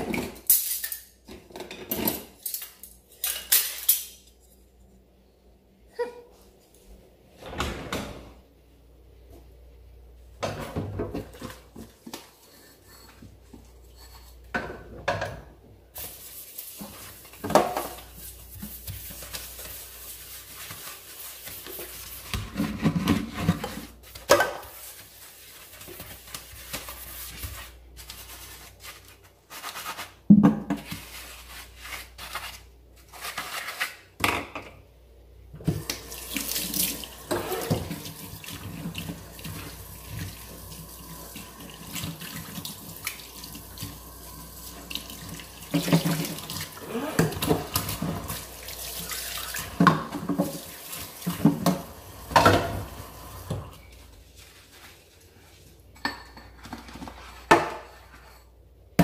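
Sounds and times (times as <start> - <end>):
dishes clattering: 0.0 - 4.4, 56.0 - 58.0.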